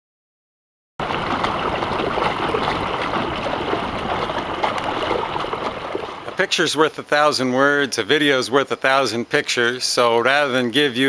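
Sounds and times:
water rushing: 1.0 - 8.6
wind: 1.0 - 11.0.

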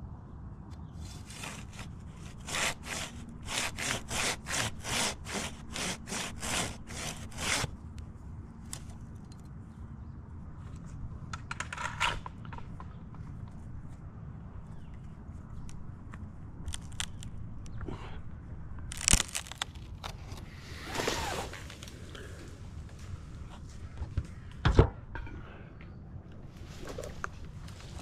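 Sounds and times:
hand saw cutting wood: 1.2 - 7.7.

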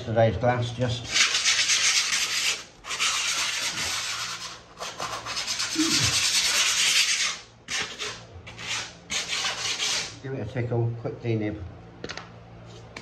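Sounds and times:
hand sanding fibreglass: 1.1 - 10.2.

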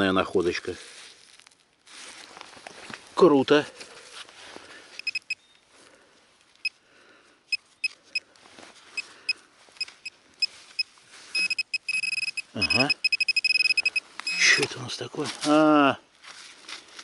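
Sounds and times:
metal detector pinpointer beeping: 5.0 - 5.6, 7.5 - 8.3, 9.0 - 14.7.

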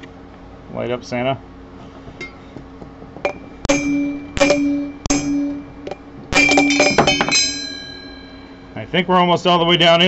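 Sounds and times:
hammer striking metal bearing: 3.2 - 8.7.

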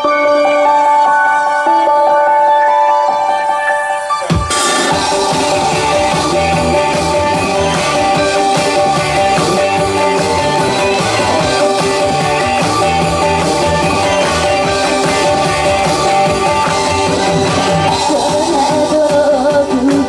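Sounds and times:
rock-style pop song with guitar: 4.2 - 20.0.

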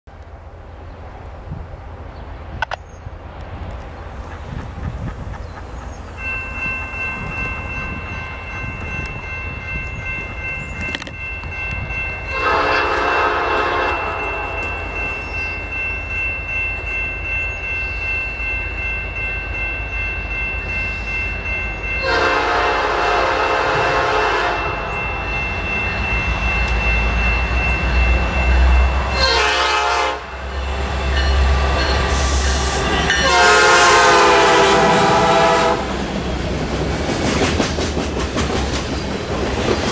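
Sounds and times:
diesel engines and wheels rumbling: 0.1 - 39.9
locomotive air horn blasts: 12.3 - 14.7, 22.0 - 24.8, 29.1 - 30.4, 33.1 - 35.9.

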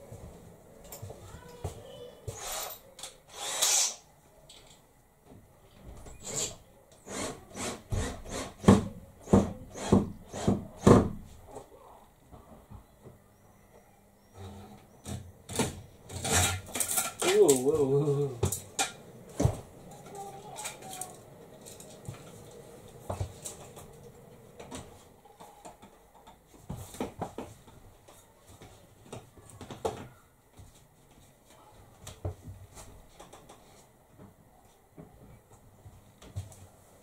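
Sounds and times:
roller blind clicks and knocks: 15.5 - 17.7.

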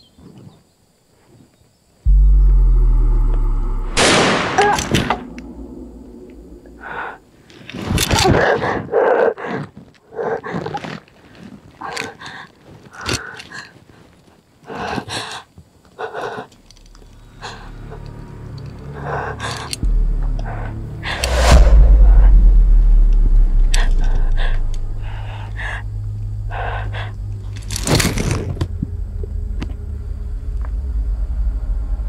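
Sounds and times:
gunshot: 2.1 - 6.9.

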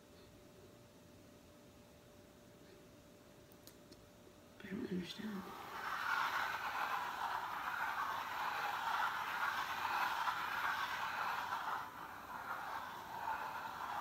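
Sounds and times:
planchette scraping across board: 5.6 - 14.0.

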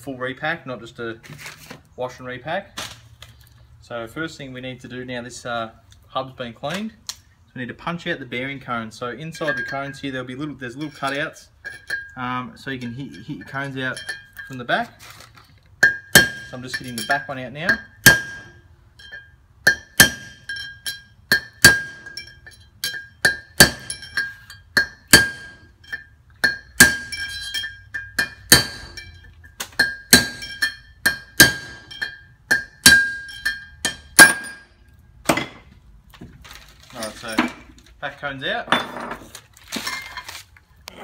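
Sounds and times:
hammer striking metal: 15.8 - 34.7.

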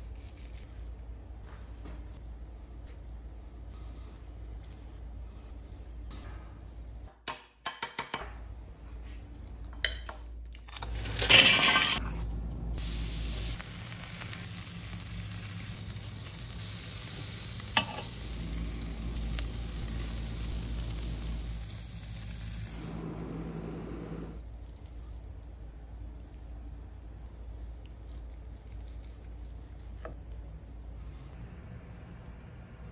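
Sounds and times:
meat sizzling on charcoal grill: 10.9 - 23.1.

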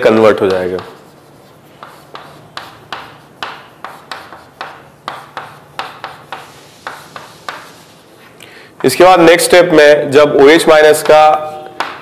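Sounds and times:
chalk strokes and taps on board: 0.0 - 8.1.

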